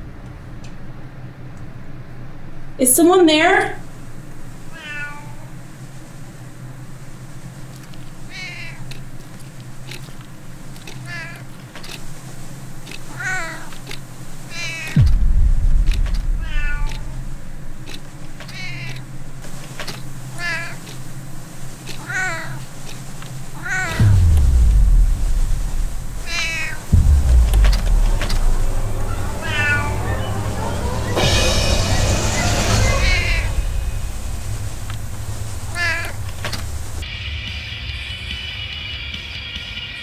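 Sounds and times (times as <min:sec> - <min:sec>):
cat meowing: 0:04.7 - 0:05.5, 0:08.3 - 0:08.9, 0:11.0 - 0:11.4, 0:13.1 - 0:13.7, 0:14.5 - 0:15.0, 0:16.4 - 0:17.2, 0:18.4 - 0:19.0, 0:20.4 - 0:20.8, 0:22.0 - 0:22.6, 0:23.6 - 0:24.0, 0:26.2 - 0:26.8, 0:29.5 - 0:29.8, 0:35.7 - 0:36.2
deep low booms: 0:15.0 - 0:17.9, 0:24.0 - 0:37.0.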